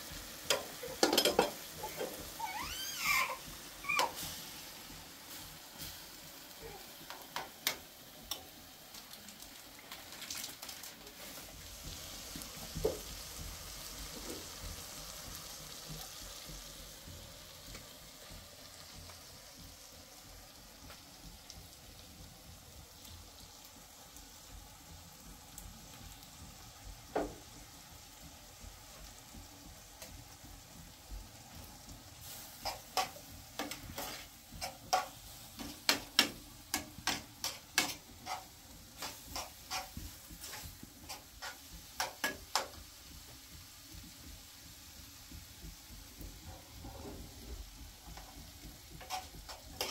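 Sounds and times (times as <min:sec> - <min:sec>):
food sizzling in frying pan: 0:00.0 - 0:49.9
metal spoon knocking on pan: 0:00.5 - 0:02.0.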